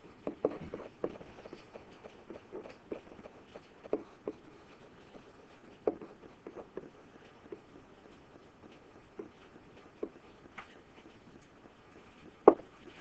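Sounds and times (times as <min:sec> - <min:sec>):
stylus tapping on screen: 0:00.1 - 0:11.6, 0:12.3 - 0:13.0.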